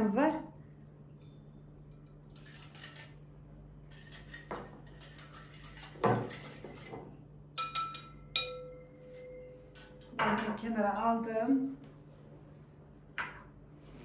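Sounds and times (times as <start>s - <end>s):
whisk swishing in liquid: 2.3s - 6.9s
metal whisk clinking on glass: 7.6s - 10.2s.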